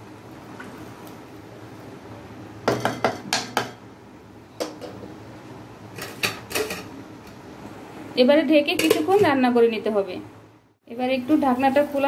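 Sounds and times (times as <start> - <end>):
wooden spatula knocking on pot: 2.7 - 3.8.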